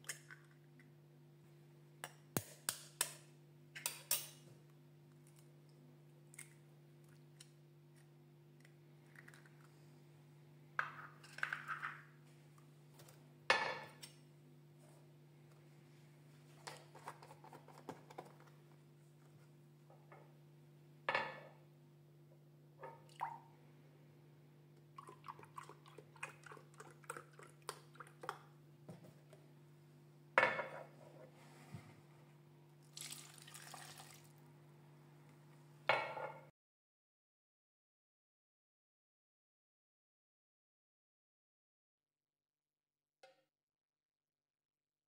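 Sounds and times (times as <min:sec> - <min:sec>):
milk pouring and gurgling: 0:24.8 - 0:28.5, 0:32.8 - 0:34.4
mug set down on marble counter: 0:30.4 - 0:30.9
dripping: 0:32.9 - 0:34.3.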